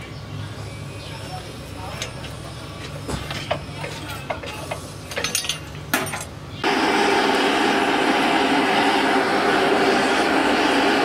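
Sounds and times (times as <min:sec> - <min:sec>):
metal shear clicking and clanking: 0:01.9 - 0:06.4
forge fire and air blast rushing: 0:06.6 - 0:11.0.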